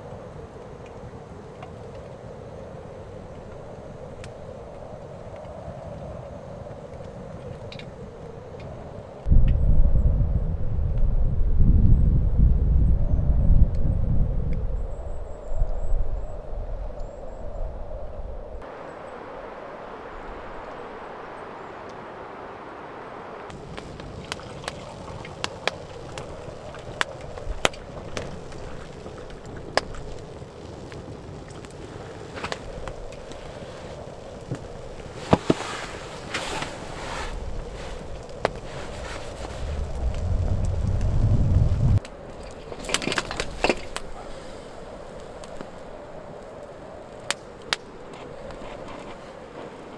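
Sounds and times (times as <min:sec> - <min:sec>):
low fire hiss: 0:00.0 - 0:49.9
crackling pops: 0:23.5 - 0:42.2
water pouring into a mug: 0:24.2 - 0:25.3.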